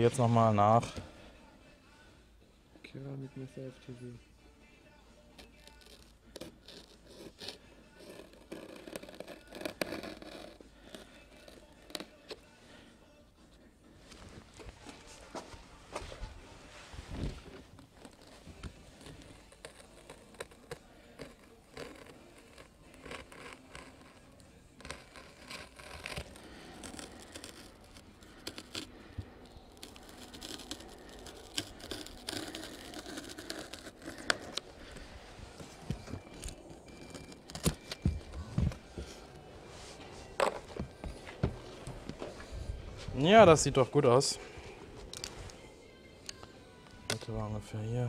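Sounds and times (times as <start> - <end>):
knife cutting foam: 5.4 - 12.4, 17.8 - 35.0
plastic film crinkling and tearing: 21.8 - 35.0.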